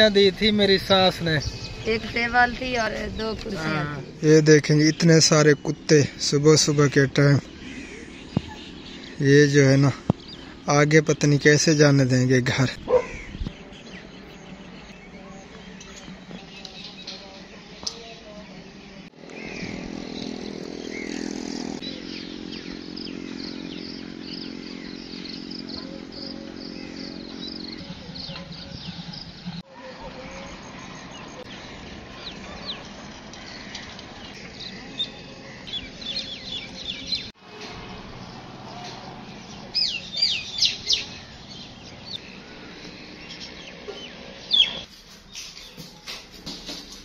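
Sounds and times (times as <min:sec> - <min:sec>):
small birds chirping: 0:00.0 - 0:47.0
steady low hum: 0:19.4 - 0:29.6, 0:30.4 - 0:44.9.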